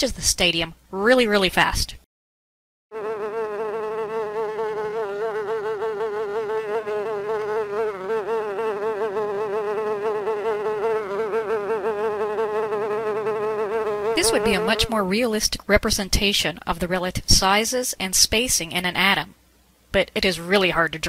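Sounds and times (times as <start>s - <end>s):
small insect buzzing: 2.9s - 15.0s.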